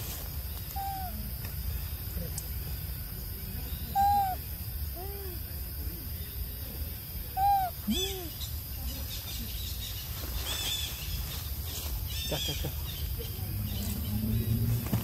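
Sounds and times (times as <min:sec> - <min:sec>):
high chirping calls: 0:00.5 - 0:02.0, 0:03.4 - 0:05.3, 0:07.3 - 0:11.2
animal hooting calls: 0:04.0 - 0:04.4.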